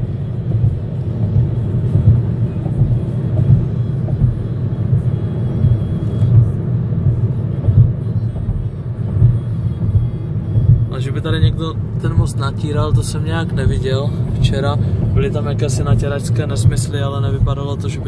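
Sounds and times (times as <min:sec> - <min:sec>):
car road noise rumble: 0:00.0 - 0:18.0.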